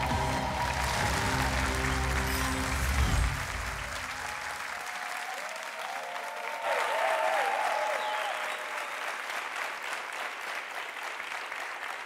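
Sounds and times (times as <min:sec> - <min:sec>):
studio audience applauding: 0:00.0 - 0:12.0.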